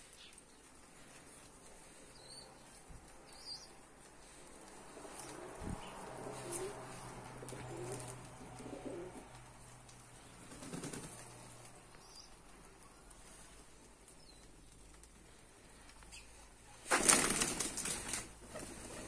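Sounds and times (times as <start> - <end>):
pigeons cooing softly: 1.7 - 16.8.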